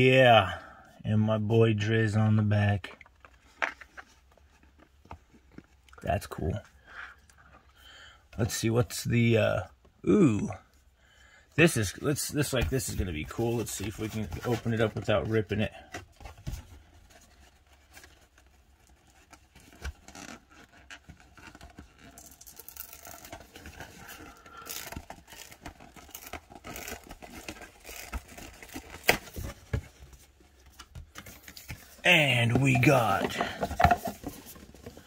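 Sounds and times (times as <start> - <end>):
paper and card rustling: 11.9 - 35.0.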